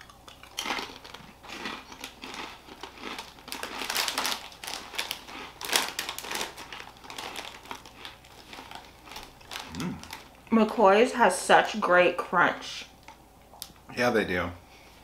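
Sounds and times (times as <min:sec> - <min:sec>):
crisp packet crinkling: 0:00.4 - 0:10.4.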